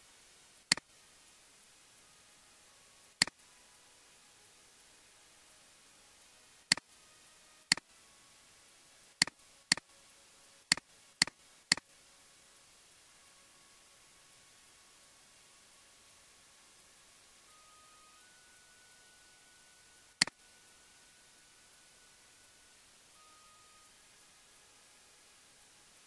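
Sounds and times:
faint steady hiss: 0.0 - 26.0
computer mouse clicking: 9.2 - 9.8, 10.7 - 11.9.

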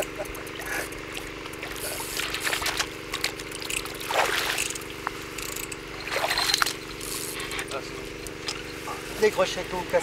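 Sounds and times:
steady low hum: 0.0 - 10.0
shallow water splashing: 0.5 - 5.4, 6.0 - 7.2.

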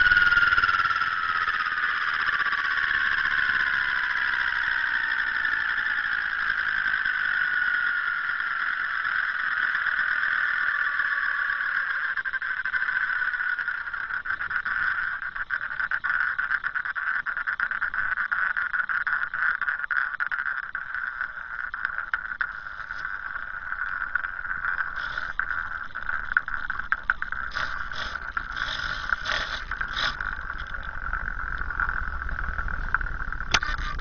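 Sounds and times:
helicopter rotor whirring: 0.0 - 7.3.

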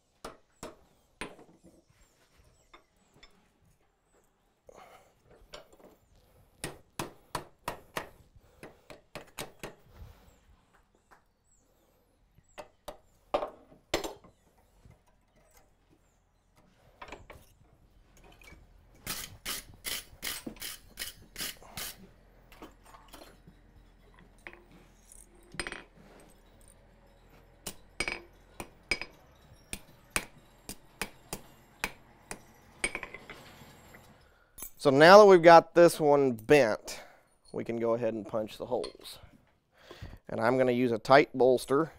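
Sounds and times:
hammer striking steel on anvil: 27.6 - 33.2.

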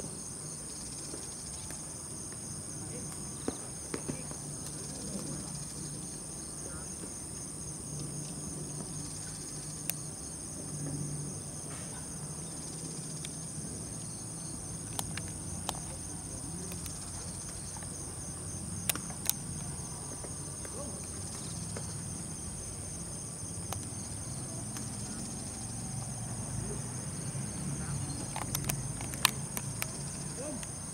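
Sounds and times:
insects chirring: 0.0 - 30.9
sharp clicks: 28.2 - 30.0.

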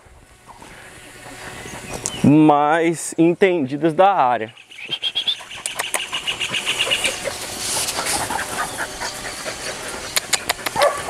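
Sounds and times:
small bird chirping trill: 4.5 - 7.2.

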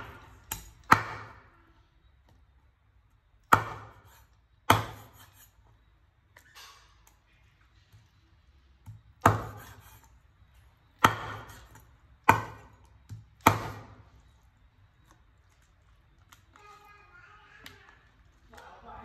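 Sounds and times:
knife chopping on wooden board: 0.0 - 1.5, 3.4 - 5.5, 8.8 - 10.1, 10.9 - 14.1.

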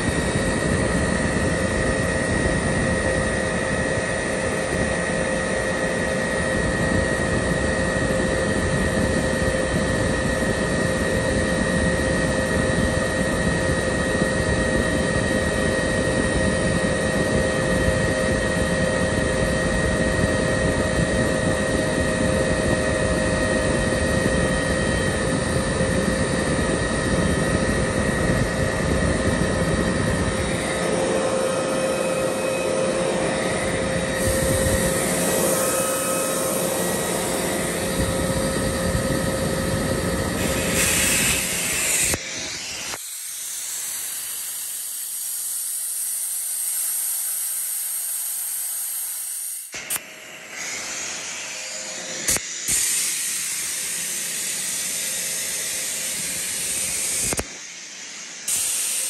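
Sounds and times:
air compressor running: 0.0 - 59.0
escaping air hiss: 34.2 - 38.5, 40.3 - 45.5, 49.9 - 57.4, 58.1 - 59.0
sharp click: 49.8 - 50.1, 52.3 - 52.9, 57.2 - 57.6.

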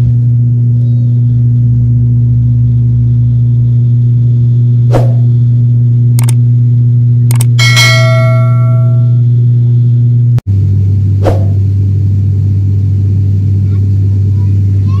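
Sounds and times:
turboprop engine drone in cabin: 0.0 - 15.0
clicks: 6.2 - 6.4, 7.3 - 7.6
cabin chime ringing: 7.6 - 9.2.

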